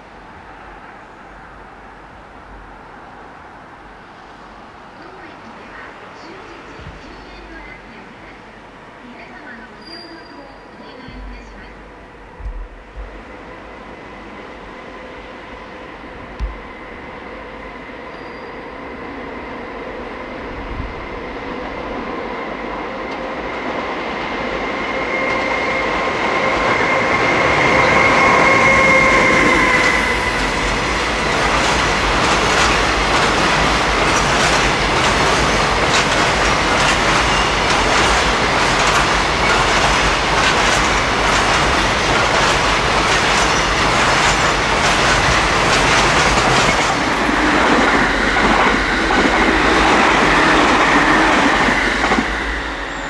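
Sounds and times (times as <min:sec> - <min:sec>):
freight train rumble: 0:00.0 - 0:53.0
electric locomotive whine: 0:09.6 - 0:53.0
train wheels clicking over joints: 0:26.8 - 0:52.6.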